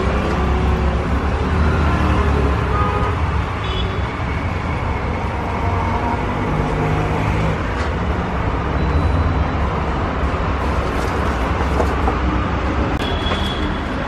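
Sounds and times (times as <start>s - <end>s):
street traffic rumble: 0.0s - 14.0s.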